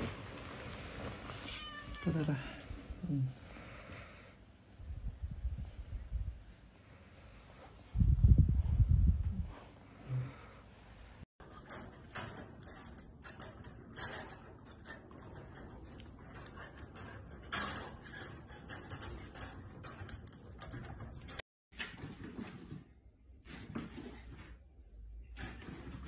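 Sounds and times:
wire crate rattling: 11.4s - 21.4s.

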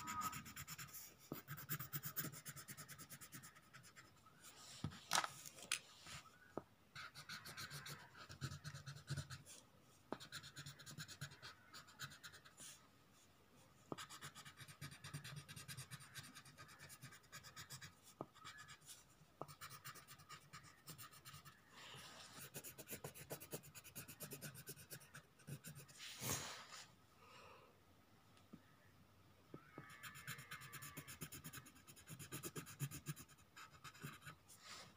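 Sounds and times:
pencil scratching on paper: 0.0s - 4.2s, 7.0s - 12.8s, 13.9s - 21.7s, 22.3s - 26.0s, 29.8s - 34.6s.

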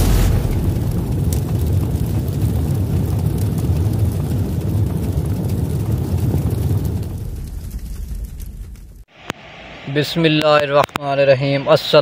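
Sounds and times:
deep rumbling sound effect: 0.0s - 9.1s.

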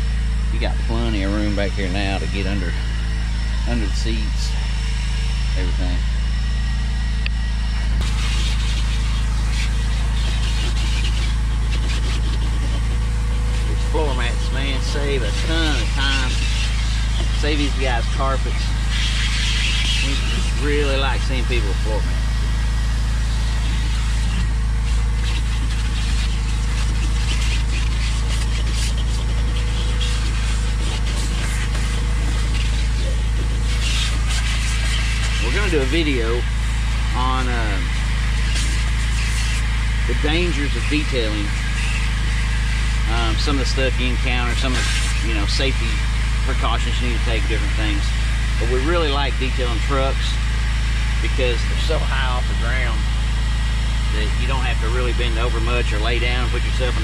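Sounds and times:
low mechanical hum: 0.0s - 57.0s
vacuum hose sucking air: 0.0s - 57.0s
hissing bursts of suction: 8.0s - 52.9s.

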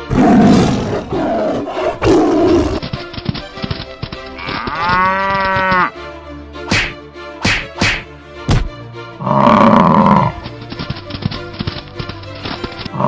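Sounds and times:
background music: 0.0s - 13.0s
lions roaring: 0.1s - 2.8s, 9.2s - 10.3s
cow mooing: 4.4s - 5.9s, 9.2s - 10.4s.

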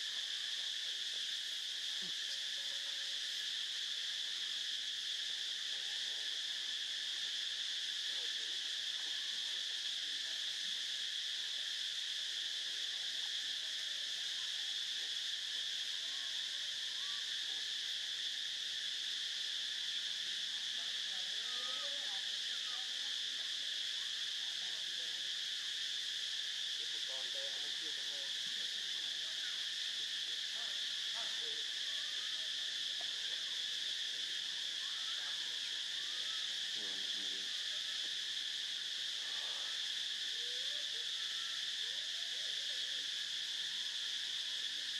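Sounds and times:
high-pitched insect chorus: 0.0s - 44.9s.

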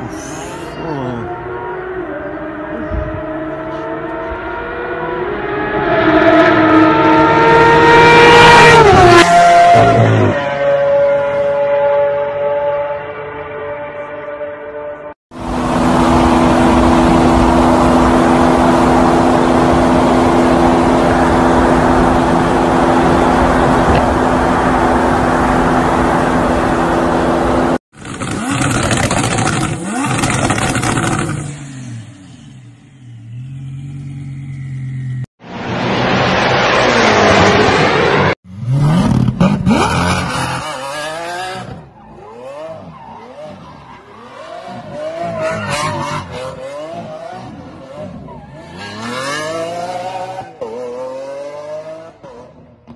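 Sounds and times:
car engine drone: 0.0s - 52.9s.

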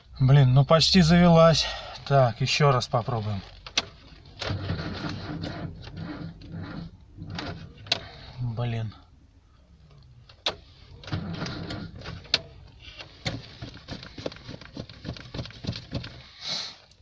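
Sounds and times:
starter motor cranking engine: 3.7s - 8.3s, 10.4s - 16.4s.

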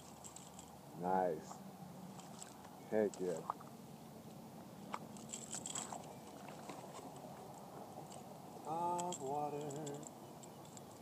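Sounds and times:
faint background hiss: 0.0s - 11.0s
faint clicks: 8.9s - 11.0s.

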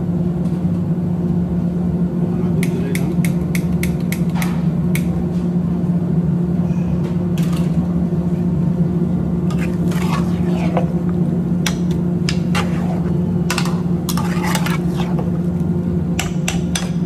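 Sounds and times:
steady low hum: 0.0s - 17.0s
metal spatula scraping frying pan: 9.5s - 11.0s, 12.3s - 15.4s.

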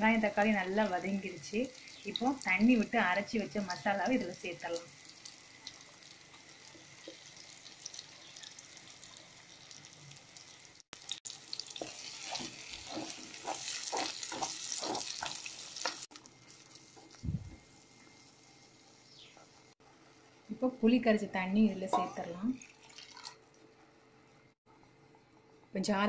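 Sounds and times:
hot oil sizzling: 0.0s - 23.4s
stirring strokes: 11.7s - 17.2s.

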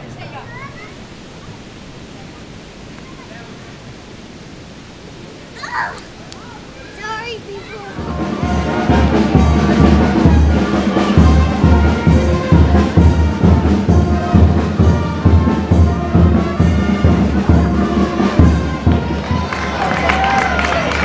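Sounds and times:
steady drum beat: 7.8s - 20.3s
brass band playing: 8.0s - 21.0s.

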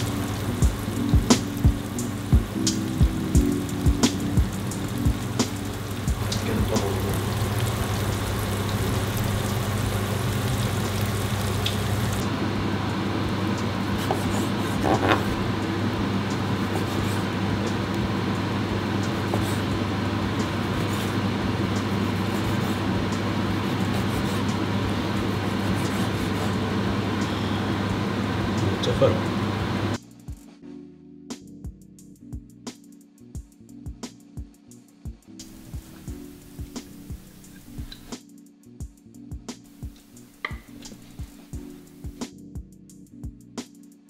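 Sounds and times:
even hiss: 0.0s - 12.4s, 35.4s - 38.2s
low constant hum: 0.0s - 30.0s.

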